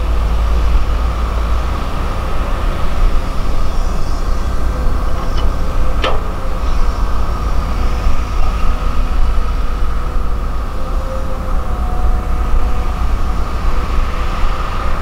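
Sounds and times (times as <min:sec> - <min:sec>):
heavy diesel engines rumbling: 0:00.0 - 0:15.0.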